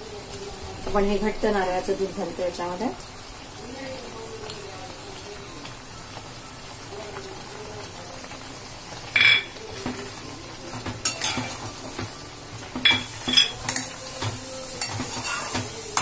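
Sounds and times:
curry simmering sizzle: 0.0s - 16.0s
spatula scraping metal pan: 14.8s - 16.0s.

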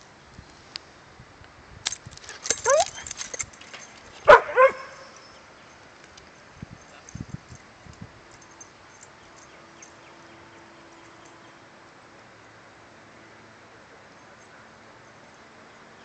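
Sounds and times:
dog barking: 4.2s - 5.2s.

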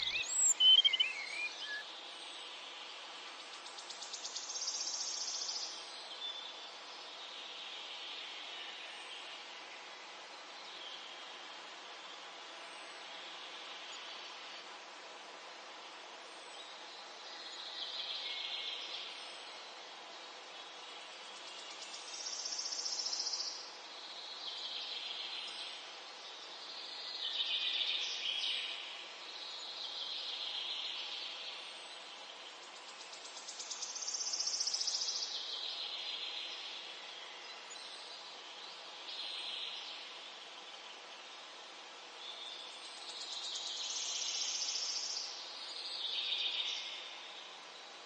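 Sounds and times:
insects chirping: 0.0s - 1.8s
steady hiss: 0.0s - 48.0s.

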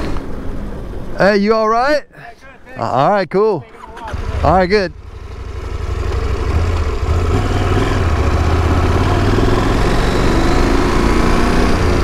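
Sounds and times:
motorcycle engine pulling away: 4.1s - 12.0s.

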